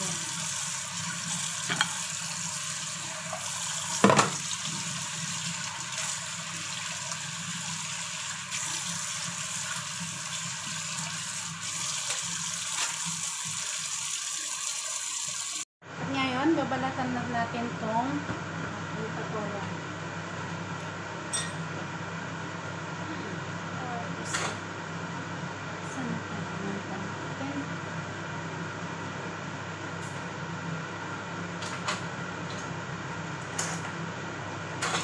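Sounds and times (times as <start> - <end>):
tap water running into a sink: 0.0 - 15.6.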